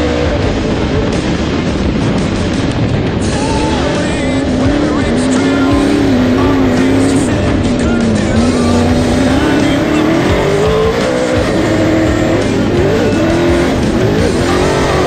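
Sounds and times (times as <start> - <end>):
race truck engine running hard: 0.0 - 15.0.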